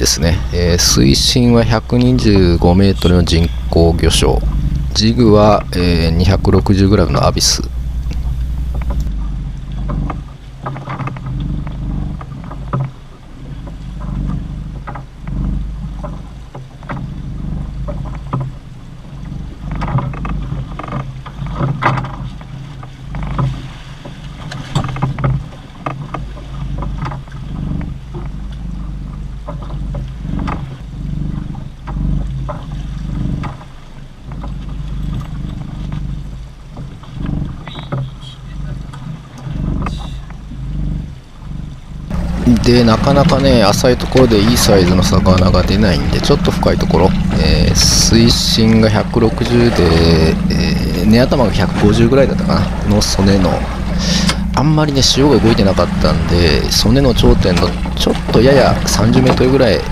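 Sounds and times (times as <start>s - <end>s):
boat engine humming: 0.0s - 59.9s
water around hull: 0.0s - 59.9s
wind: 0.0s - 59.9s
knocks and clicks: 2.2s - 9.1s.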